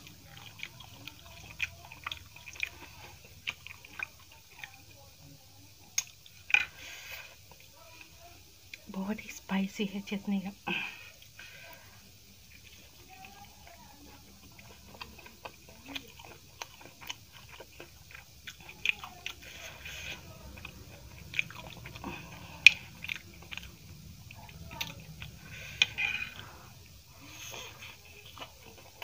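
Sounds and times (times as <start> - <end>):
close biting and chewing: 0.0 - 4.8, 12.4 - 29.0.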